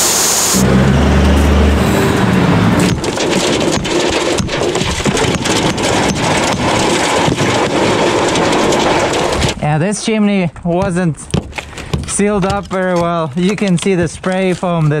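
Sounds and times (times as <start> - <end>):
diesel truck idling: 0.3 - 6.8
rubble scraping and clattering: 1.4 - 9.8, 10.4 - 15.0.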